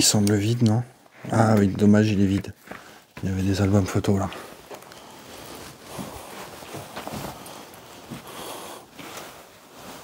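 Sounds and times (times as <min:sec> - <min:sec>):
soft knocks and rustles: 0:04.7 - 0:08.4.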